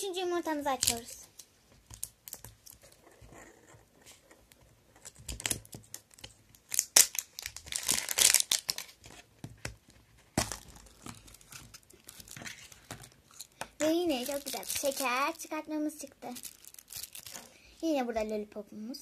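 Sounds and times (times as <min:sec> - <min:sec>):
plastic wrapper tearing and crinkling: 0:00.7 - 0:01.2, 0:05.1 - 0:09.1, 0:10.4 - 0:17.6.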